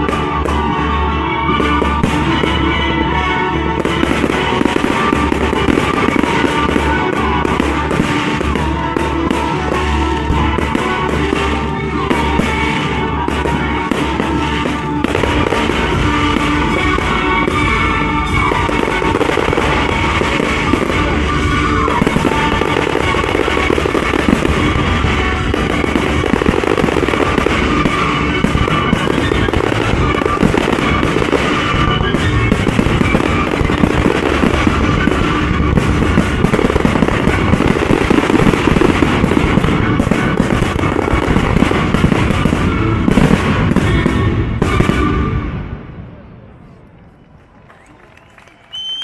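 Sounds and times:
loud music: 0:00.0 - 0:46.0
fireworks bursting: 0:00.0 - 0:46.6.

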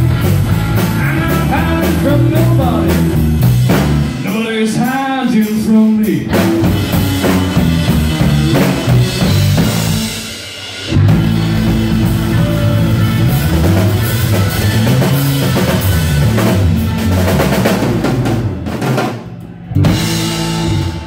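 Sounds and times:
live rock band playing: 0:00.0 - 0:21.0
person singing: 0:00.7 - 0:03.2.

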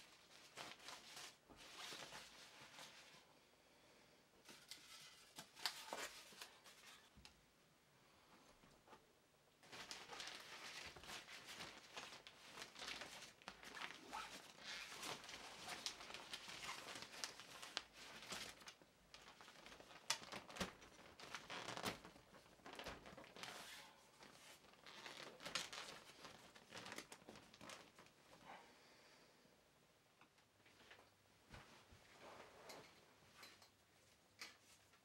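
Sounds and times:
fabric rustling and crinkling: 0:00.0 - 0:03.3, 0:08.6 - 0:28.6, 0:30.4 - 0:35.0.

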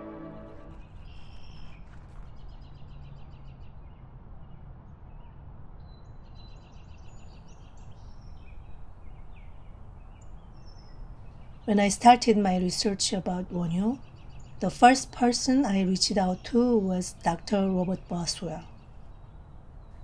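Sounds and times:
small birds chirping: 0:05.9 - 0:20.0.

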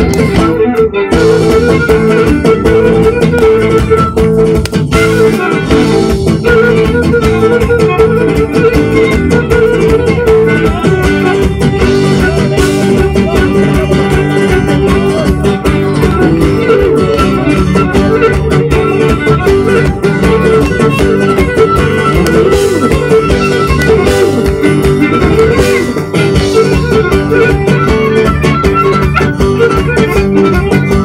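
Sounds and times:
folk dance music with plucked strings: 0:00.0 - 0:31.0.

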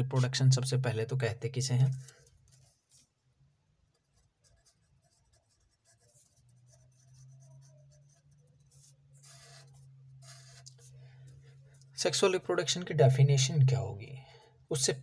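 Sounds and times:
marker pen scratching on paper: 0:01.8 - 0:03.2, 0:03.9 - 0:11.0
low steady hum: 0:05.1 - 0:15.0.

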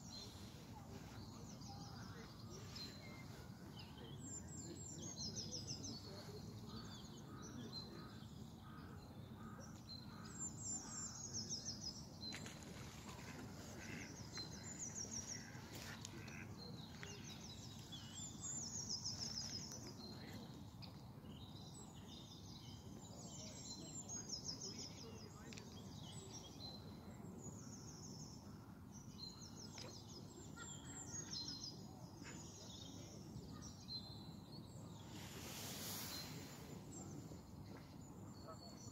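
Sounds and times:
low background noise: 0:00.0 - 0:38.9
songbirds trilling: 0:00.0 - 0:38.9.

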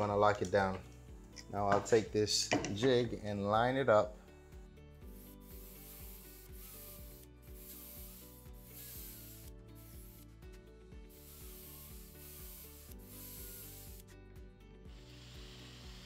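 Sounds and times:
drill bit rasping into wood: 0:11.2 - 0:14.1, 0:14.9 - 0:16.0.

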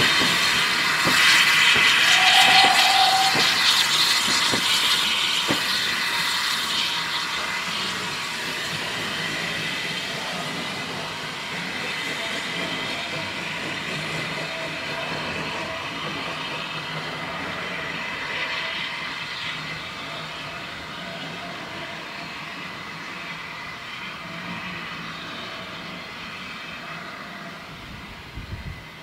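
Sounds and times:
wheel squeal: 0:00.0 - 0:07.5
steam hiss: 0:00.0 - 0:29.0.

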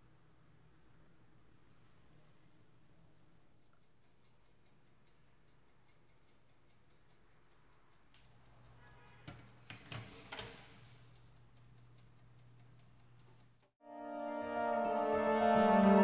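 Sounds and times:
rapid even ticking: 0:02.9 - 0:13.7
baking tray knocking and clattering: 0:09.2 - 0:10.8.

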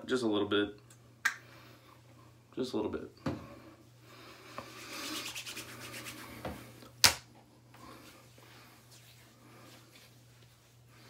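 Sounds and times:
hands rubbing lotion: 0:04.6 - 0:06.5.

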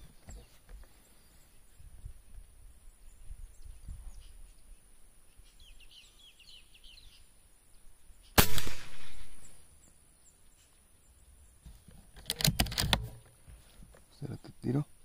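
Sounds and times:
bird chirps: 0:00.0 - 0:08.4
air rifle shot: 0:08.4 - 0:09.6.

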